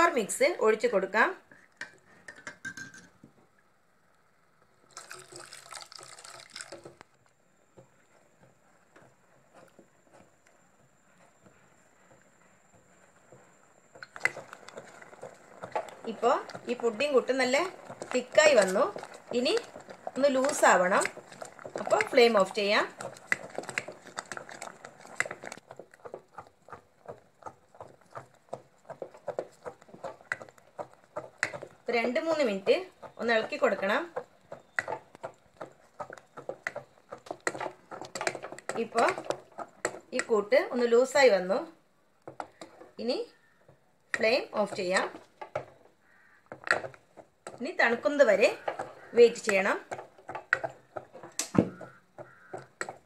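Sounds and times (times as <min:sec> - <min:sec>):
liquid pouring into pot: 0:04.8 - 0:07.0
spatula knocking on pot: 0:43.7 - 0:53.0.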